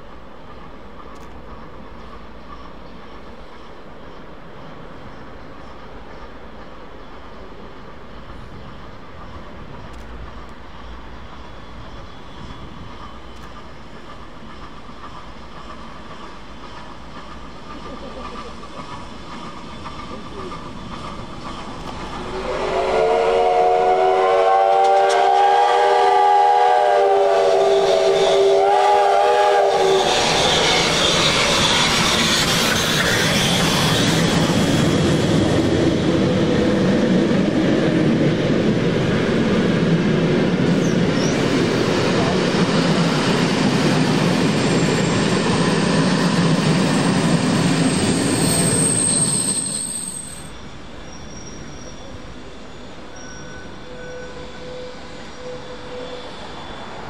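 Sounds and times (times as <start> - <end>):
train wheels rumbling on rails: 0.0 - 57.0
steam locomotive whistle: 22.3 - 33.9, 51.5 - 57.0.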